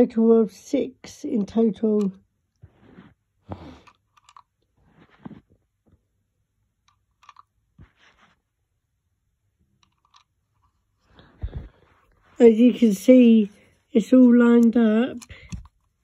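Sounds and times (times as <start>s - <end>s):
plastic toy pieces clicking: 3.8s - 4.5s, 6.9s - 7.5s, 9.8s - 10.3s.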